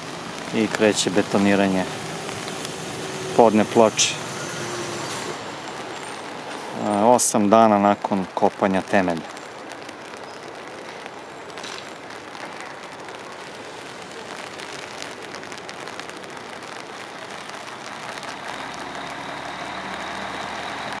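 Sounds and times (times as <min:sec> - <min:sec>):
outdoor background noise: 0:00.0 - 0:21.0
motor vehicle engine: 0:01.8 - 0:06.2, 0:18.1 - 0:21.0.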